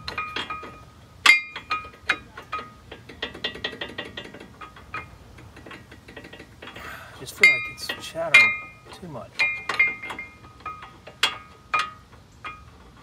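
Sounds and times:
metal knocks with ringing tone: 0:07.4 - 0:08.8.

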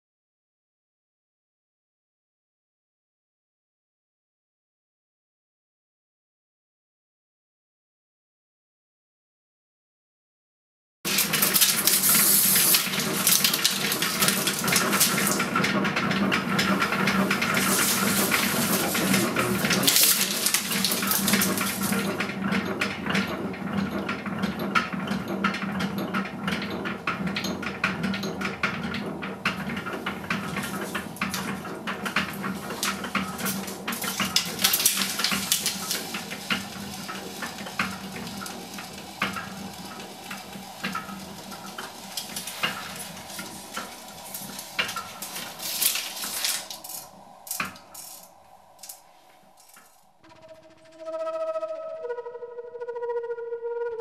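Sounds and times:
steady low hum: 0:11.1 - 0:23.7, 0:29.1 - 0:54.0
film projector whirring and clicking: 0:11.1 - 0:49.0.

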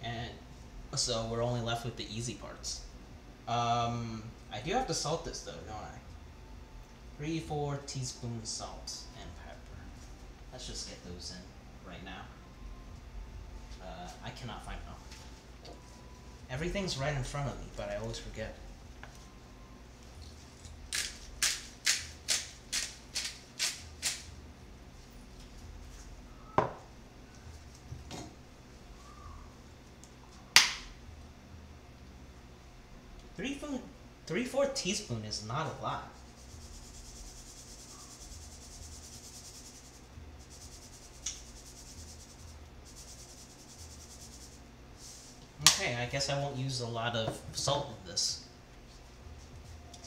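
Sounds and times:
shaker rattling: 0:20.2 - 0:24.3, 0:36.2 - 0:45.3
spice grinder gritty hiss: 0:20.9 - 0:24.3, 0:36.2 - 0:45.5.

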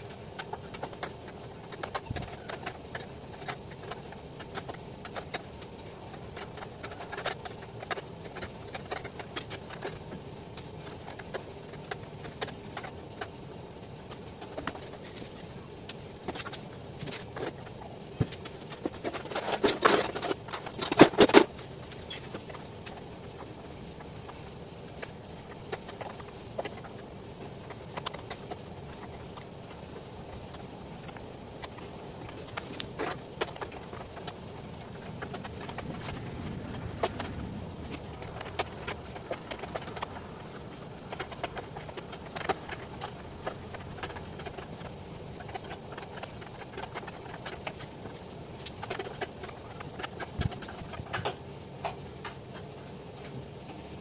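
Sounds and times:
metal tools clinking and scraping: 0:19.0 - 0:22.5.

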